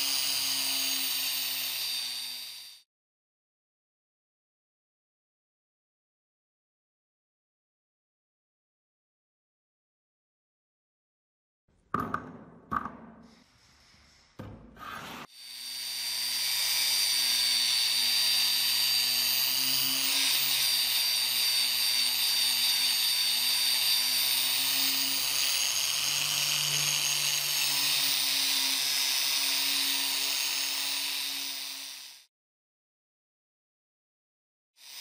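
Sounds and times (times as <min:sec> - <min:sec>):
polishing motor whining: 0:00.0 - 0:02.8, 0:15.2 - 0:32.2.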